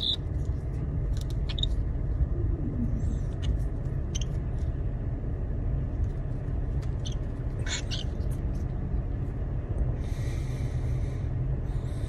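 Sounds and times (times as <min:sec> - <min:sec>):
cockatiels chirping: 0:00.0 - 0:00.2, 0:01.3 - 0:01.8, 0:03.1 - 0:04.4, 0:06.8 - 0:08.3.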